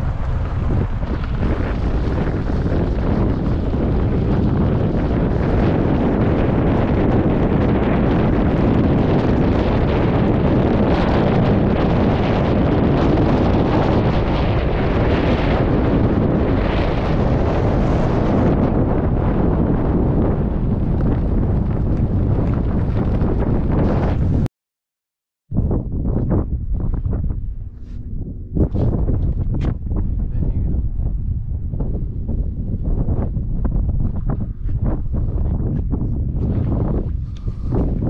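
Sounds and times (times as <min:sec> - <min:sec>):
car and tyres rumbling: 0:00.0 - 0:24.5
wind buffeting microphone: 0:00.0 - 0:24.5, 0:25.5 - 0:38.0.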